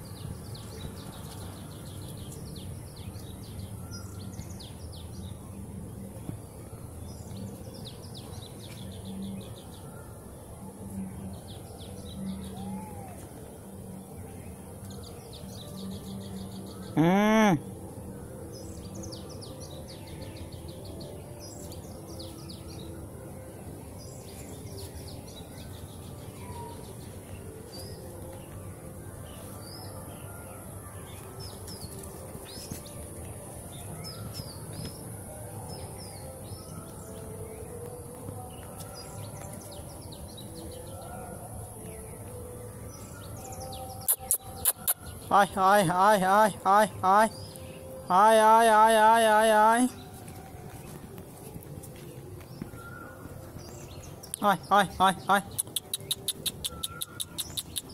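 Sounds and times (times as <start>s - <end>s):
small birds chirping: 23.9s - 57.9s.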